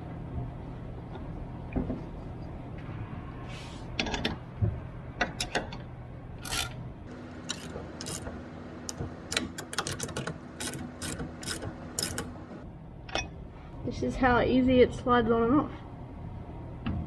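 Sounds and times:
low steady hum: 0.0s - 17.0s
hand ratchet clicking: 7.5s - 8.3s, 8.9s - 12.3s.

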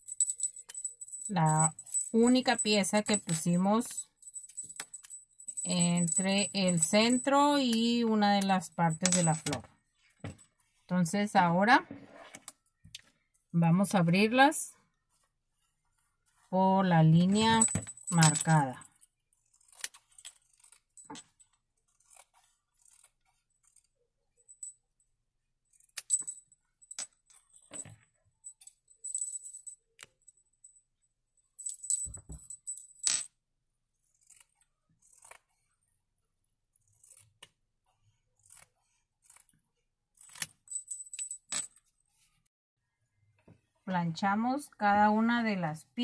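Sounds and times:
fabric cutting strokes: 36.8s - 37.5s, 38.2s - 39.7s.

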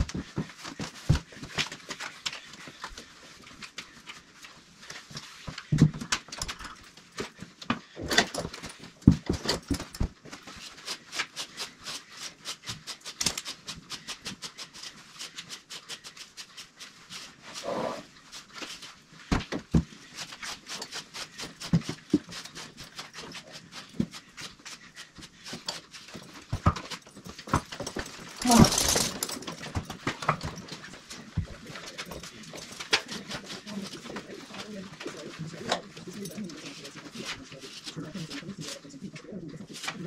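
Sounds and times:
horse breathy snort: 17.5s - 18.1s.

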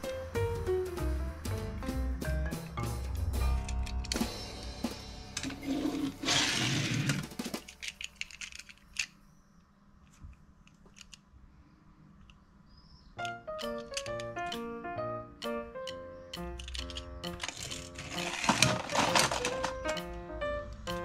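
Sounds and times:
background music: 0.0s - 7.9s, 13.2s - 21.0s
toy cars rustling and scraping: 5.4s - 9.3s, 10.0s - 11.3s, 16.6s - 20.0s
light clicks and taps of metal toy car: 10.0s - 11.3s, 13.2s - 14.6s, 15.8s - 17.8s.

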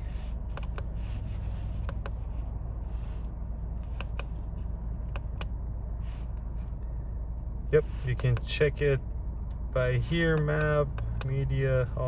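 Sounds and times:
car engine idling hum: 0.0s - 12.0s.

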